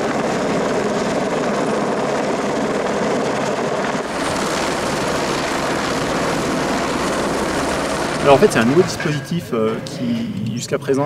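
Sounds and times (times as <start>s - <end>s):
helicopter hovering: 0.0s - 10.7s.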